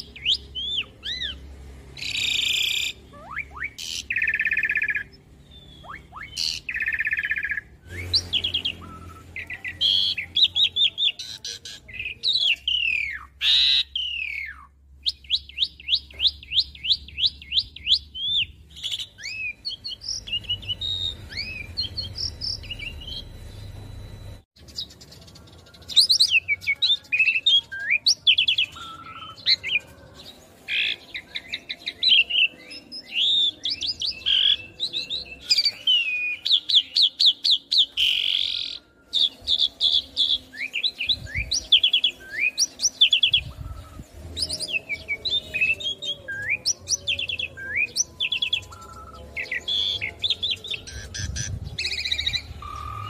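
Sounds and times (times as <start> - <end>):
bird whistles and chirps: 2.0 - 11.4, 12.0 - 23.7.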